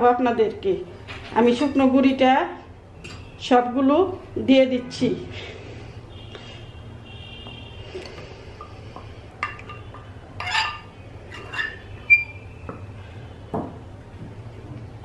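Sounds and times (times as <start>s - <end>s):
metal spoon clinking on bowls: 9.4s - 12.3s.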